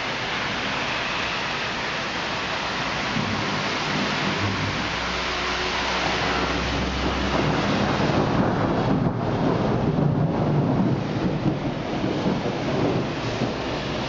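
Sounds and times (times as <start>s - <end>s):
steady rain: 0.0s - 14.0s
low thunder rumble: 3.0s - 14.0s.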